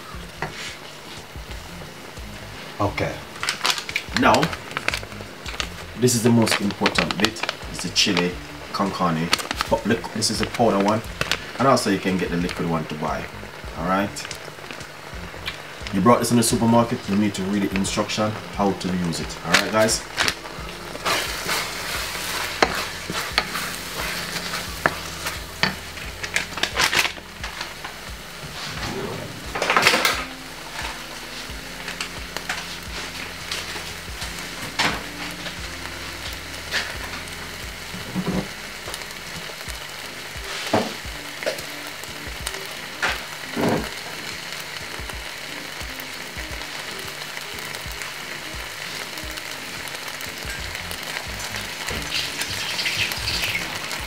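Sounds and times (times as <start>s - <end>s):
food sizzling in a pan: 0.0s - 54.0s
wooden spoon scraping a pan: 0.2s - 1.4s, 15.5s - 35.6s.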